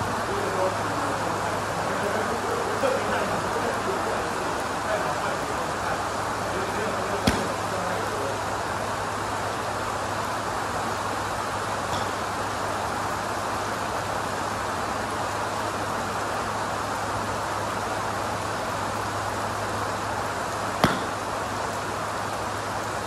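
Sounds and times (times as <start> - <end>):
golf club striking ball: 7.2 - 7.6, 11.9 - 12.2, 20.8 - 21.3.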